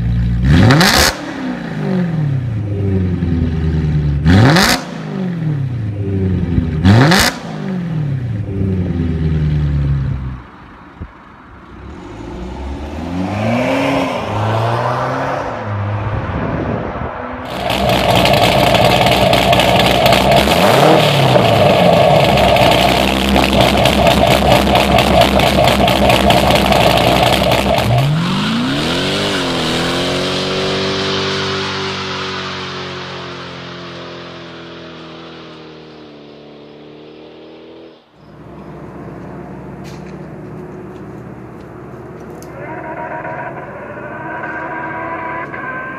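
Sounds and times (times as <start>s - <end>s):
car engine revving: 0.0s - 45.9s
diesel engine revving: 0.0s - 45.9s
tyres screeching in a burnout: 26.2s - 31.0s, 42.5s - 45.9s.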